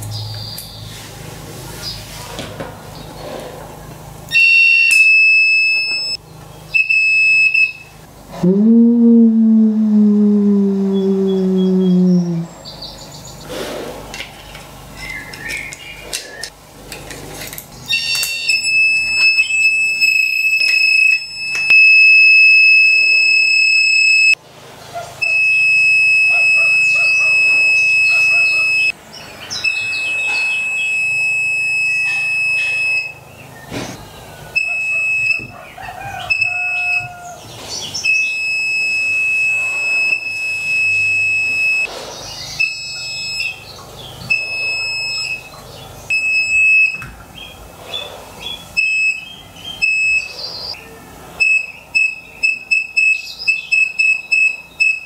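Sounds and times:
high buzzer beeps: 4.3s - 6.2s, 6.8s - 7.9s, 17.9s - 24.4s, 25.2s - 28.9s, 29.6s - 33.2s, 34.6s - 35.5s, 38.0s - 41.9s, 42.6s - 43.6s, 44.3s - 45.5s, 46.1s - 47.0s, 48.8s - 50.3s, 51.4s - 55.0s.

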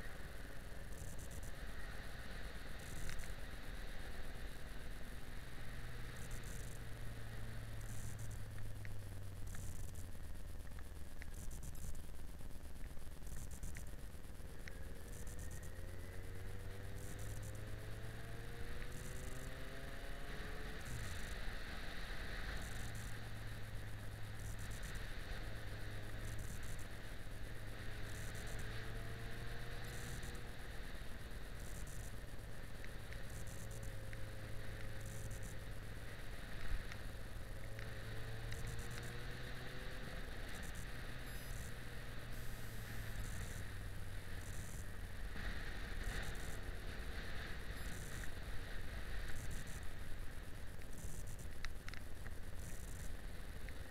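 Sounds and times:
wind and road noise: 0.0s - 53.9s
motorcycle engine accelerating: 13.3s - 50.4s.

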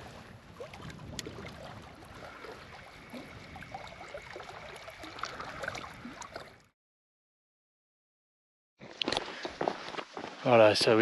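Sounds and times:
waves lapping against shore: 0.0s - 6.6s.

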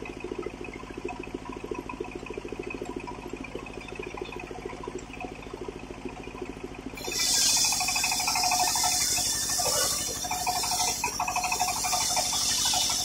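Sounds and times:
saw motor throbbing: 7.0s - 13.0s.

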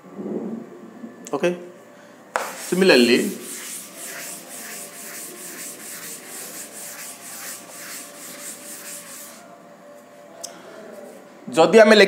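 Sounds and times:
cloth wiping chalkboard: 2.4s - 9.5s.

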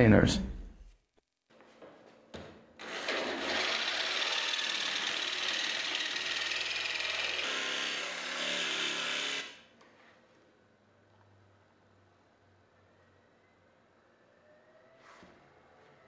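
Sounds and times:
jigsaw cutting sheet metal: 2.8s - 9.7s.

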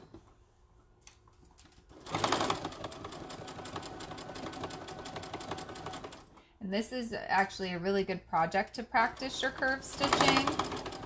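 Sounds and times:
sewing machine stitching: 1.8s - 6.4s, 8.8s - 11.0s.

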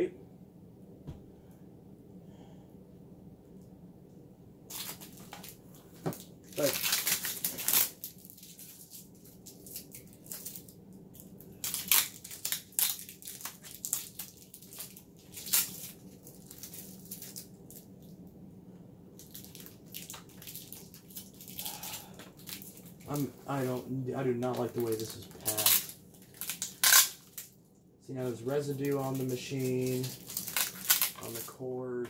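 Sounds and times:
packing material crinkling: 4.7s - 18.1s, 19.2s - 27.6s, 28.2s - 31.7s.

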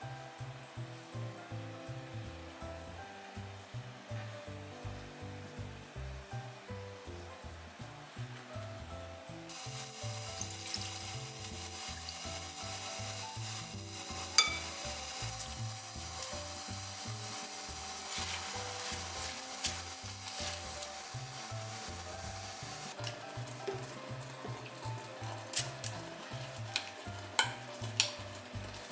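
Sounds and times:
liquid bubbling and sizzling: 0.0s - 28.9s
soft background music: 0.0s - 28.9s
chopsticks stirring: 9.5s - 28.9s.

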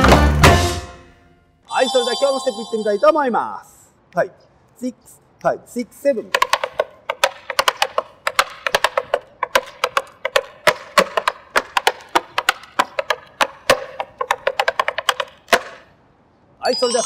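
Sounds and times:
tap shoes on wooden board: 6.3s - 15.9s.

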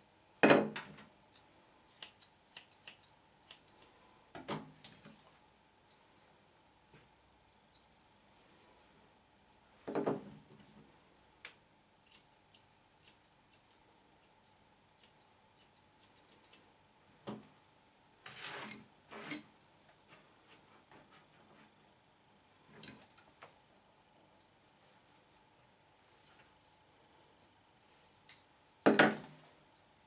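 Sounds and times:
scissors snipping hair: 1.3s - 3.9s, 12.1s - 16.6s.

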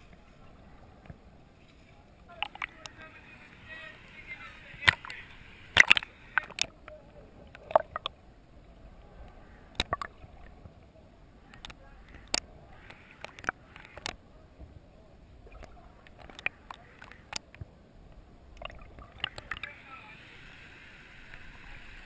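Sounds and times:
faint water hiss: 0.0s - 22.0s
sharp clicks and pops underwater: 2.2s - 3.0s, 4.7s - 8.2s, 9.7s - 10.5s, 11.5s - 14.2s, 15.4s - 17.7s, 18.5s - 19.8s.

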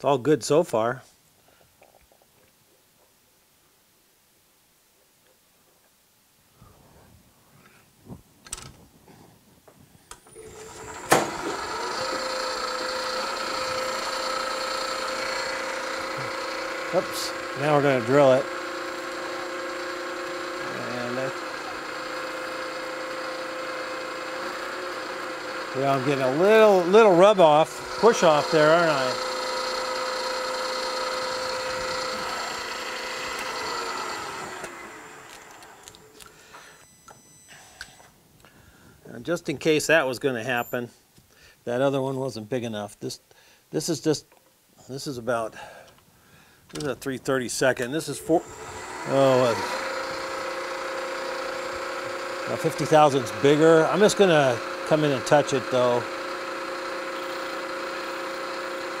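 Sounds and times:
milling machine motor whine: 10.2s - 38.1s, 47.8s - 59.0s.

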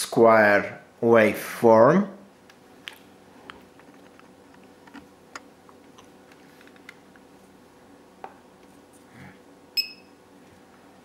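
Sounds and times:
short high electronic beep: 9.8s - 10.1s.

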